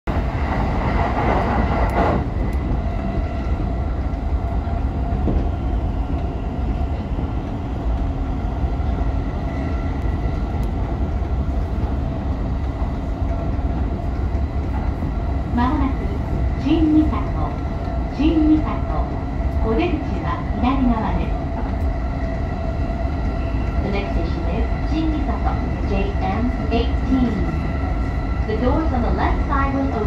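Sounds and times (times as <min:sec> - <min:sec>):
train wheels rumbling on rail: 0:00.1 - 0:30.0.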